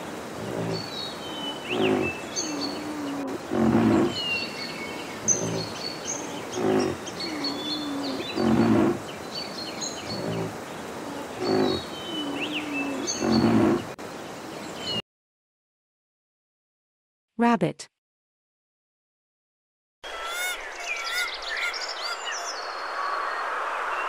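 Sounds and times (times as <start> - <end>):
small birds chirping: 0.0 - 15.0, 20.1 - 24.0
rhinoceros low grunting calls: 0.3 - 9.1, 9.9 - 14.0
rhinoceros wavering moan: 0.3 - 9.1, 9.8 - 14.0.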